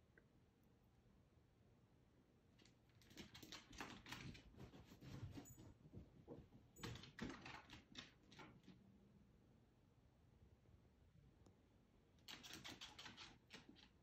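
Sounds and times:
pet claws clicking on wood floor: 2.6s - 4.6s, 6.8s - 8.8s, 12.2s - 14.0s.

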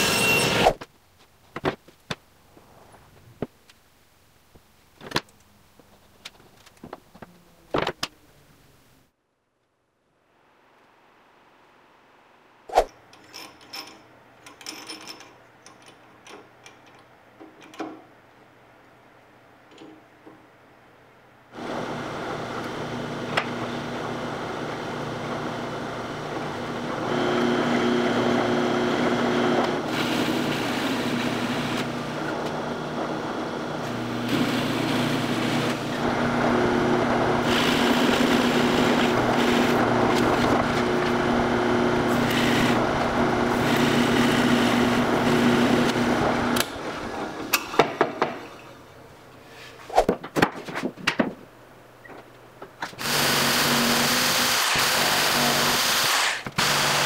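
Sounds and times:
drill bit boring plywood: 21.6s - 46.7s, 53.0s - 57.0s
drill press motor hum: 21.6s - 46.9s, 53.0s - 57.0s
wood knocking and clacking: 50.1s - 51.4s.

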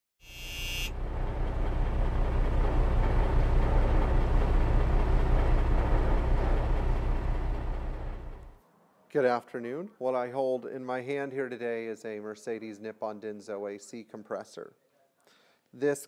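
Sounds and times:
brief high ringing tone: 0.2s - 1.0s
steady low rumble: 0.9s - 8.6s.

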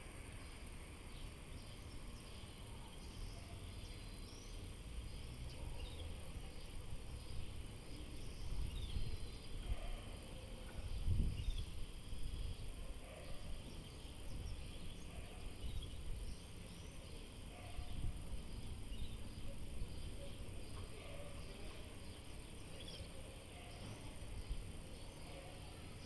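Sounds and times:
wind gusting on microphone: 10.8s - 12.8s.

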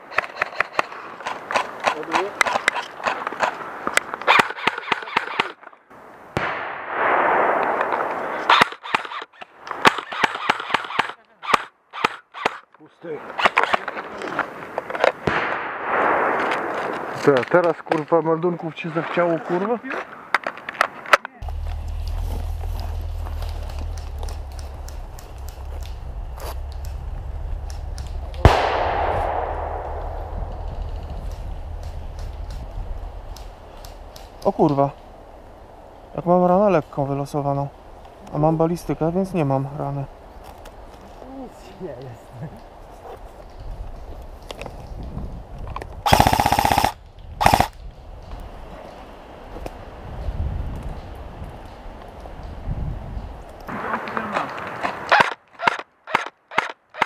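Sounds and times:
airsoft rifle shots: 4.2s - 5.6s, 28.4s - 31.4s, 46.0s - 47.8s
grenade bang echoing: 6.4s - 8.7s, 15.2s - 16.9s, 28.1s - 31.7s
low wind rumble: 21.4s - 55.1s.

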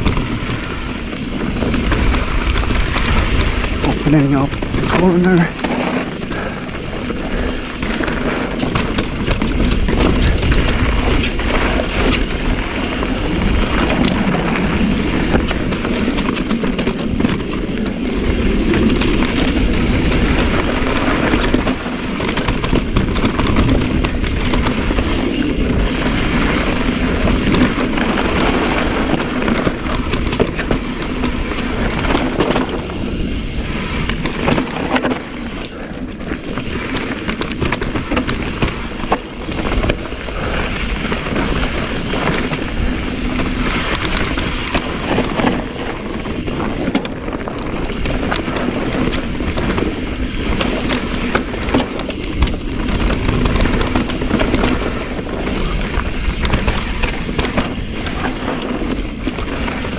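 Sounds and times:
bike chain and frame rattling: 0.0s - 59.9s
tyres rolling over loose ground: 0.0s - 59.9s
wind rumbling on microphone: 0.0s - 59.9s.

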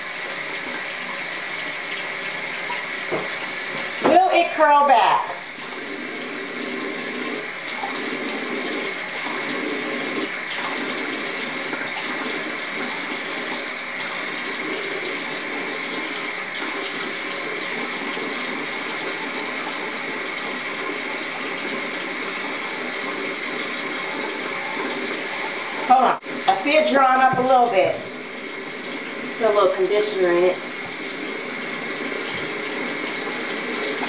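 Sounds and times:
tap water running: 0.0s - 34.0s.

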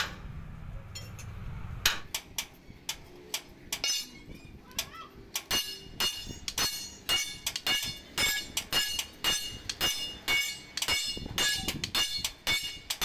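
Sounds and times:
hammer ringing on steel: 3.8s - 4.3s, 5.4s - 13.0s.

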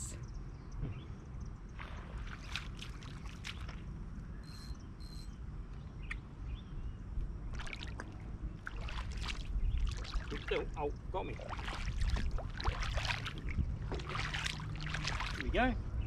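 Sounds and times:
low wind rumble on microphone: 0.0s - 16.0s
water trickling over rocks: 11.4s - 15.5s.

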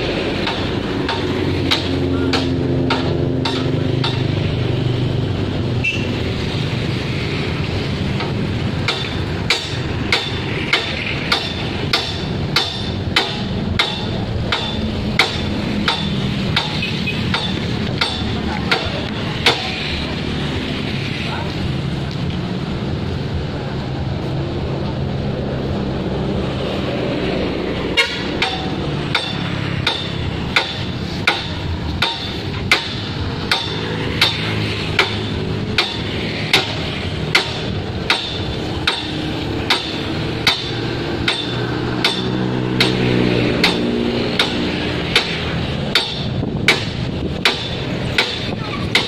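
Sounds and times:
steady traffic noise: 0.0s - 49.0s
sharp knocks: 0.4s - 4.4s, 8.1s - 19.8s, 28.1s - 49.0s
ringing hammer blows: 8.8s - 19.8s, 28.0s - 49.0s.

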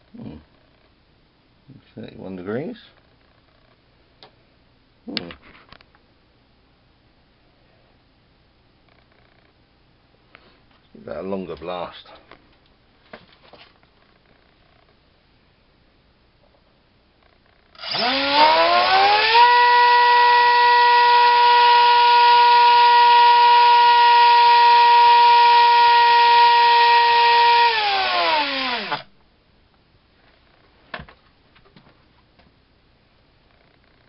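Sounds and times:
electric motor whine: 17.8s - 29.1s.

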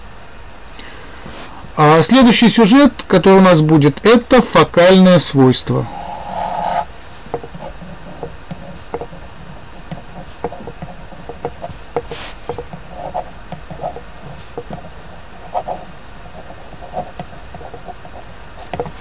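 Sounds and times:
pen scratching on paper: 7.4s - 18.9s.

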